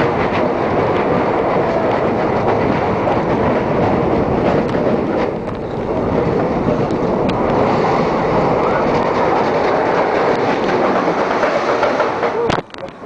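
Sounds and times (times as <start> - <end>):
roller coaster wheels rumbling: 0.0 - 13.0.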